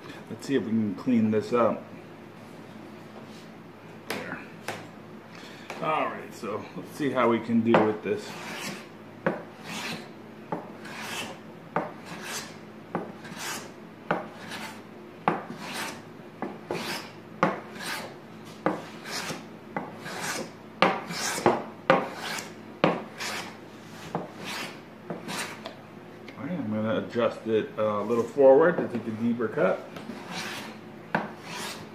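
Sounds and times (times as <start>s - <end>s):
hand plane cutting strokes: 8.2s - 8.8s, 9.6s - 10.1s, 10.8s - 11.4s, 12.0s - 12.6s, 13.2s - 14.8s, 15.5s - 16.0s, 16.7s - 17.1s, 17.7s - 18.2s, 18.8s - 19.4s, 20.0s - 22.5s, 23.1s - 25.7s, 30.1s - 31.9s.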